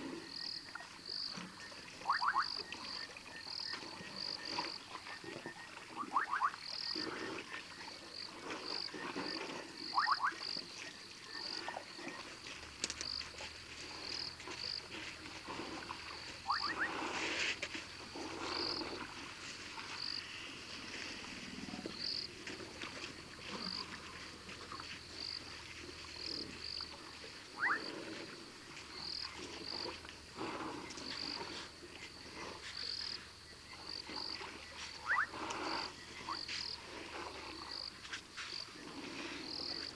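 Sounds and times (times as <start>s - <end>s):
frogs calling: 0.0s - 13.4s, 15.8s - 19.2s, 21.9s - 28.1s, 28.7s - 36.8s
elephants splashing water: 0.0s - 39.9s.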